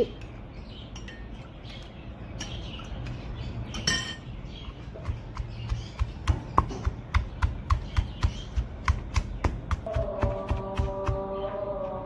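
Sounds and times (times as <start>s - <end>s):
pestle pounding in stone mortar: 4.7s - 12.0s.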